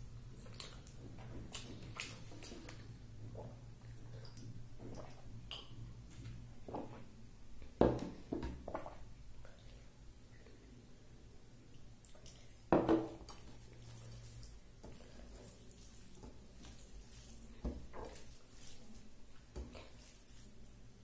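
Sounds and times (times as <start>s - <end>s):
fingers mixing wet rice: 13.2s - 20.8s.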